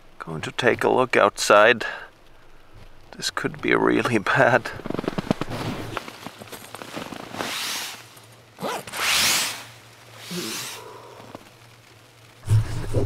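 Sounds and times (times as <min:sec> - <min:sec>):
tent zipper being pulled: 0:04.7 - 0:11.5.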